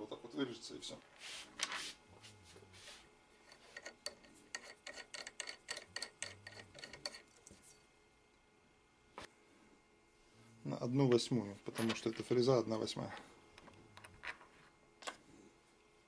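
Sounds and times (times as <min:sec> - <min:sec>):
soft rubbing: 0:01.1 - 0:03.8.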